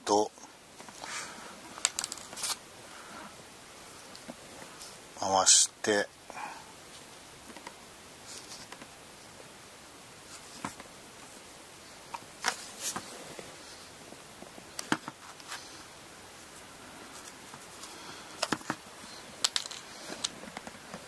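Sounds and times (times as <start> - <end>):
hand sewing clicks and rustles: 19.4 - 21.0.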